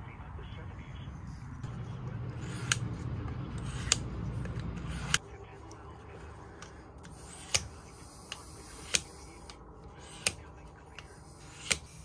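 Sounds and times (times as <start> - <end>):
blade clicking on sharpener rod: 3.6 - 5.2.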